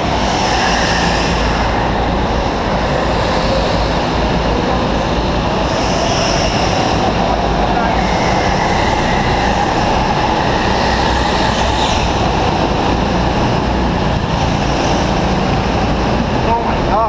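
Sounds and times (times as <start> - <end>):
go-karts rumbling: 0.0 - 17.0.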